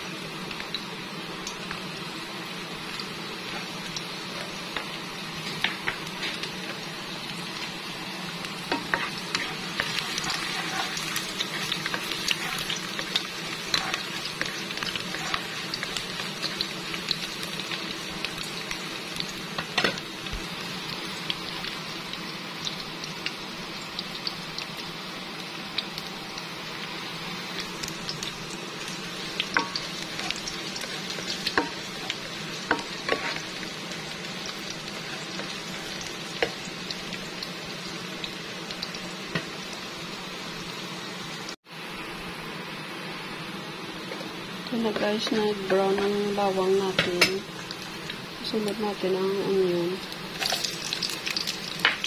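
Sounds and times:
garlic sizzling in oil: 0.0s - 52.0s
spatula scraping a pan: 5.5s - 6.5s, 8.7s - 16.6s, 29.5s - 33.6s.

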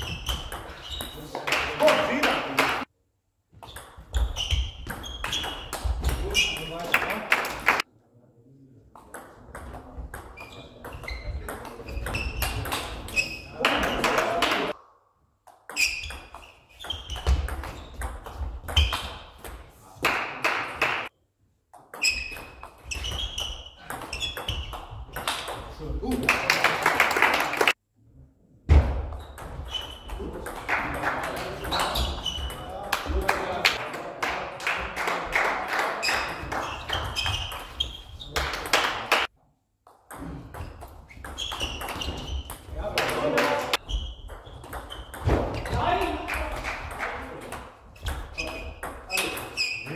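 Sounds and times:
ping pong ball hitting bats: 0.0s - 2.9s, 9.0s - 14.8s, 21.8s - 25.7s, 39.9s - 49.6s.

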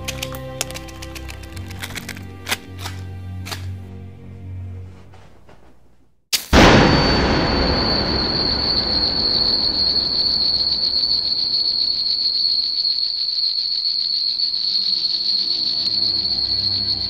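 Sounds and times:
high-pitched ringing tone: 6.6s - 17.0s.

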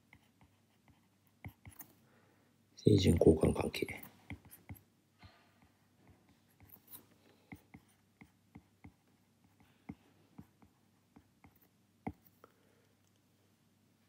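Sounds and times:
stylus tapping on tablet screen: 9.6s - 12.3s.

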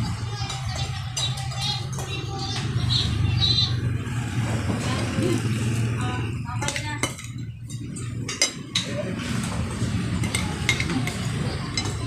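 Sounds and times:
forks clinking against plates: 0.1s - 2.2s, 6.5s - 9.2s, 9.8s - 12.0s.

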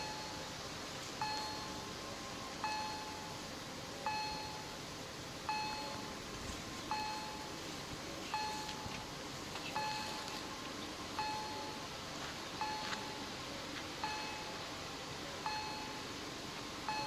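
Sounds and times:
electronic crossing bell dings: 0.0s - 0.5s, 1.2s - 1.8s, 2.6s - 3.4s, 4.0s - 4.7s, 5.5s - 6.1s, 6.9s - 7.5s, 8.3s - 8.9s, 9.8s - 10.2s, 11.2s - 11.8s, 12.6s - 13.2s, 14.0s - 14.6s, 15.4s - 16.1s.

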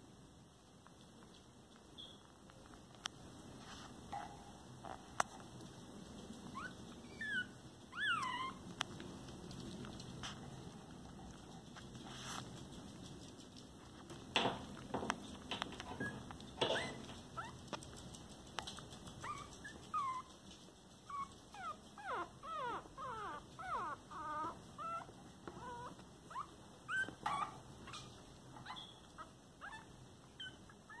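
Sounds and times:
puppies whimpering: 6.5s - 8.6s, 21.1s - 31.0s.

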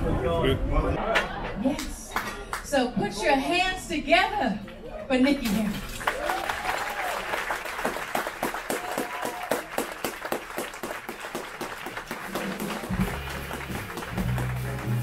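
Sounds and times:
audience applauding: 5.8s - 15.0s
audience cheering: 6.0s - 15.0s
band playing low notes: 12.4s - 15.0s.

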